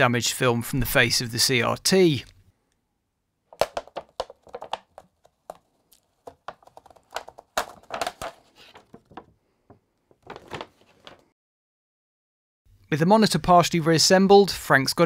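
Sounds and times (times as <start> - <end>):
plastic film crackling: 3.6 - 9.3, 10.1 - 11.2.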